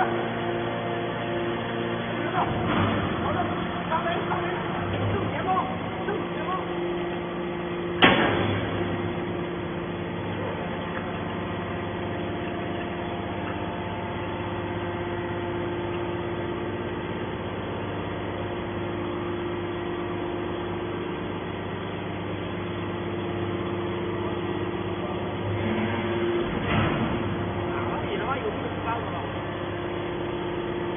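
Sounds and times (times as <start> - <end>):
hydraulic pump hum and whine: 0.0 - 30.9.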